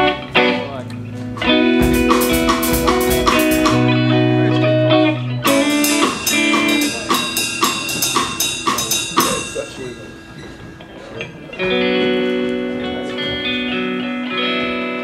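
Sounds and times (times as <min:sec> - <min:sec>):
electric bass: 0:00.0 - 0:06.9
electric guitar: 0:00.0 - 0:08.8, 0:10.1 - 0:15.0
drum and cymbal hits: 0:01.8 - 0:04.4, 0:05.5 - 0:10.8.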